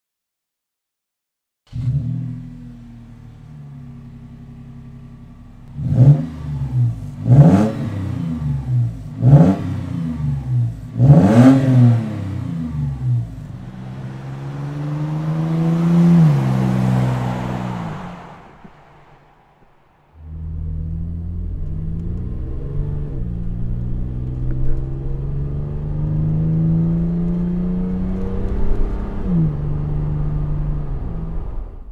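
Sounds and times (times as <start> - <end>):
engine revving: 1.7 - 19.3, 20.2 - 31.9
car engine idling: 1.8 - 25.3.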